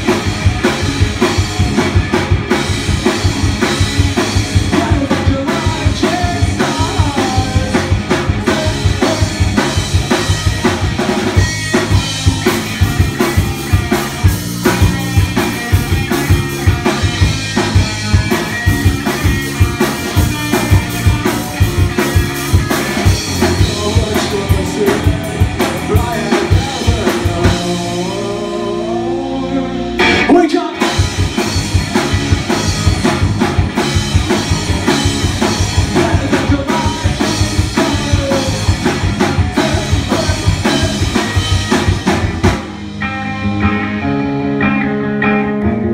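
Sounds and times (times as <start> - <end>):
live rock band playing: 0.0 - 45.9
sliding guitar notes: 11.6 - 30.9, 42.7 - 45.9.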